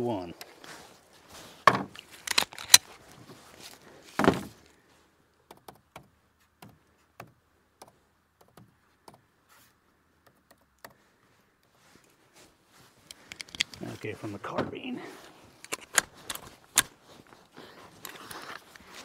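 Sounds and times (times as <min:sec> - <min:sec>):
gun handling clicks and knocks: 0:01.6 - 0:03.0, 0:13.0 - 0:14.8, 0:15.5 - 0:17.0, 0:18.0 - 0:19.0.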